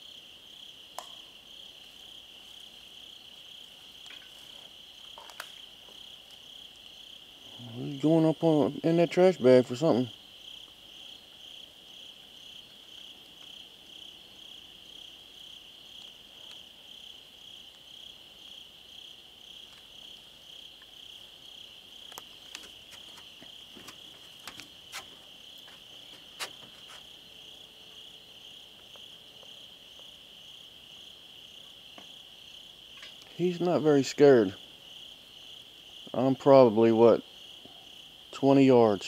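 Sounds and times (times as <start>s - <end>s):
night insects chirping: 0.0s - 39.0s
sharp clicks and rustles: 22.0s - 27.1s.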